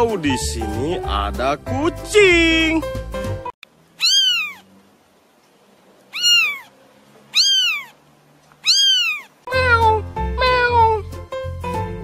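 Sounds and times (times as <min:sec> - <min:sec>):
kitten mewing: 0:04.0 - 0:04.7, 0:06.1 - 0:08.0, 0:08.6 - 0:11.1.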